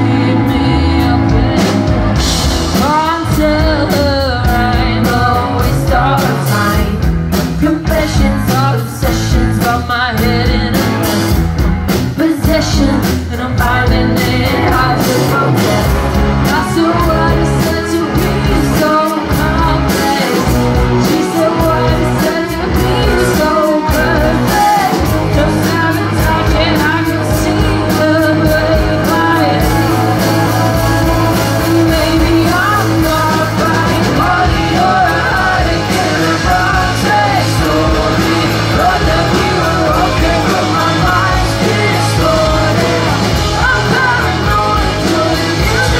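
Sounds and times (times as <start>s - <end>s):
woman singing lead: 0.0s - 11.3s, 11.9s - 45.9s
bass guitar: 0.0s - 45.9s
drum kit: 0.0s - 45.9s
electric guitars: 0.0s - 45.9s.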